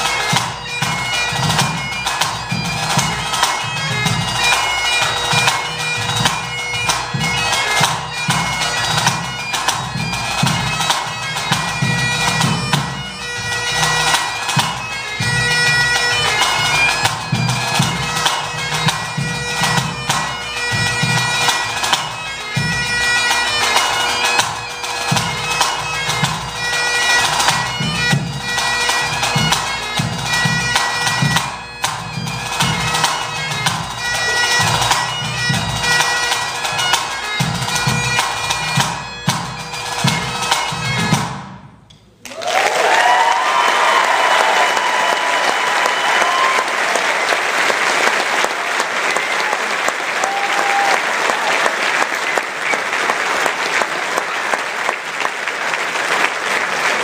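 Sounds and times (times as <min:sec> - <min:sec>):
bagpipe playing a tune: 0:00.0 - 0:41.6
pipe band drums: 0:00.0 - 0:42.2, 0:42.8 - 0:57.0
audience applause and cheering: 0:42.2 - 0:57.0.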